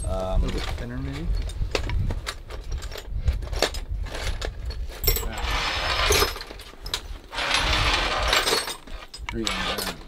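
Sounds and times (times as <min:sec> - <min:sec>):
power drill boring through steel: 0:09.4 - 0:10.0.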